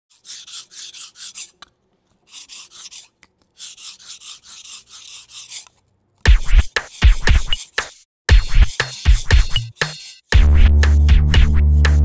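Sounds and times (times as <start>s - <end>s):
knife scraping on whetstone: 0.1s - 1.6s, 2.2s - 5.8s, 6.4s - 10.4s.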